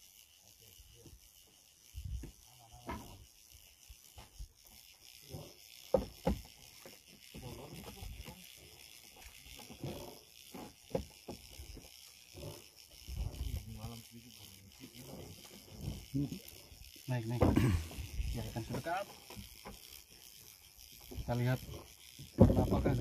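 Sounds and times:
fishing reel gears whirring: 0.0s - 23.0s.

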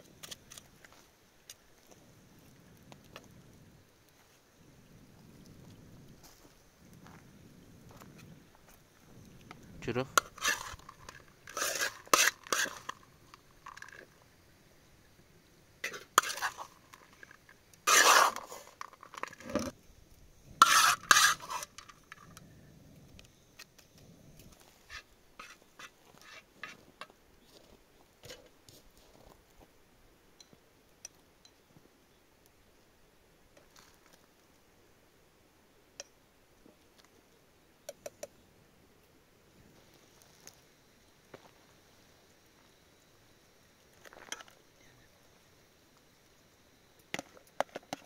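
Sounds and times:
metal spoon scraping pots: 10.1s - 14.1s, 15.8s - 19.7s, 20.6s - 22.3s, 24.9s - 26.8s.

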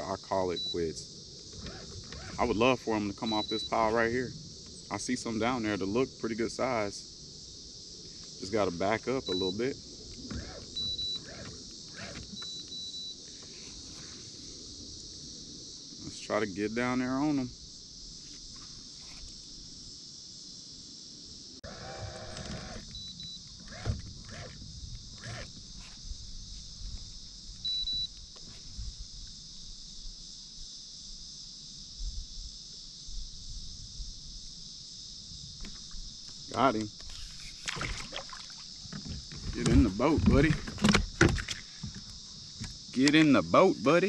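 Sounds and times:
insects chirring: 0.0s - 44.0s.

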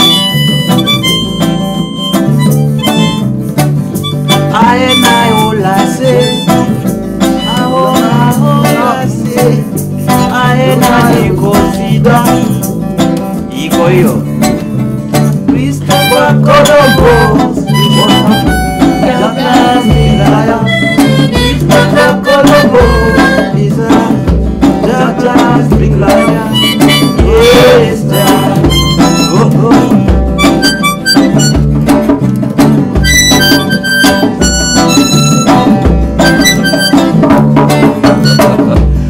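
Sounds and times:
harmonica: 0.0s - 9.0s, 15.8s - 23.7s, 26.0s - 31.9s, 32.9s - 39.0s
djembe beat: 0.0s - 39.0s
strummed acoustic guitars: 0.0s - 39.0s.

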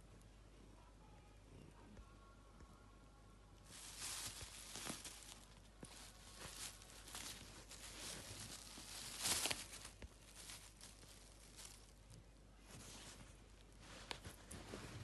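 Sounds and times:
plastic bag crinkling: 3.7s - 12.2s.

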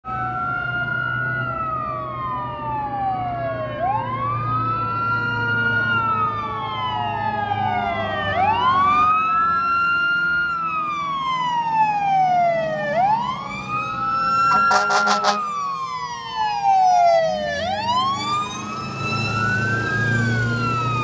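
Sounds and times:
fire engine sirens wailing: 0.0s - 21.0s.

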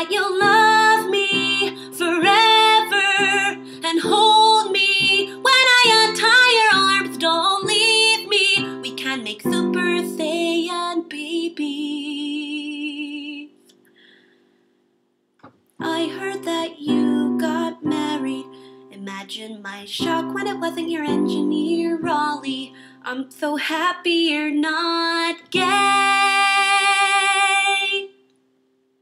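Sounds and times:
woman singing: 0.0s - 13.6s, 15.8s - 28.2s.

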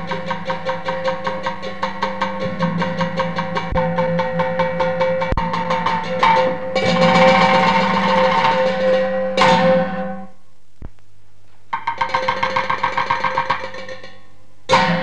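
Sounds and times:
held instrumental note: 0.0s - 10.4s
loud cymbal crashes: 0.0s - 10.4s, 14.7s - 15.0s
rapid wood-block strokes: 11.8s - 14.2s.

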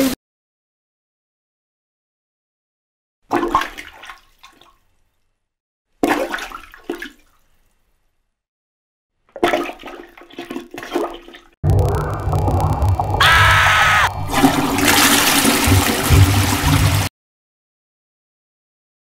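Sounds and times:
toilet plunger squelching: 9.3s - 17.1s.

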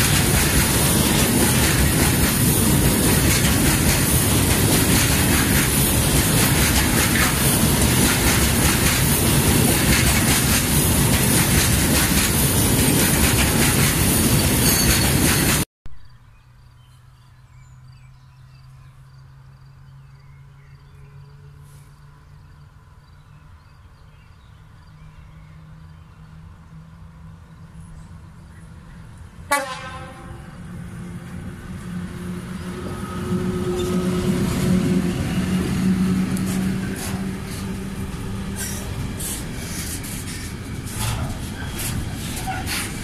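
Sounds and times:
distant locomotive hum: 0.0s - 15.6s, 18.7s - 43.0s
freight train wheels rumbling on rails: 0.0s - 15.7s, 27.1s - 43.0s.

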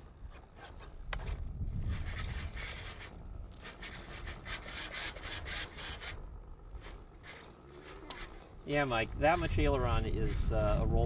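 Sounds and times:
low wind rumble: 0.0s - 11.0s
servos whirring: 0.0s - 11.0s.

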